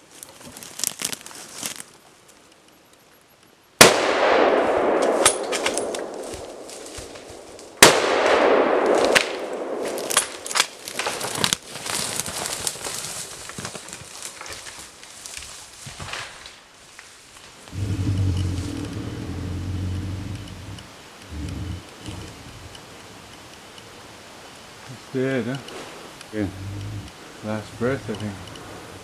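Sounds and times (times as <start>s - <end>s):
rustle of dry brush and grass: 0.0s - 3.2s, 4.8s - 8.2s, 8.8s - 29.0s
rifle shots with rolling echo: 3.8s - 11.2s
sharp clicks: 4.9s - 6.6s, 17.7s - 24.8s, 25.6s - 29.0s.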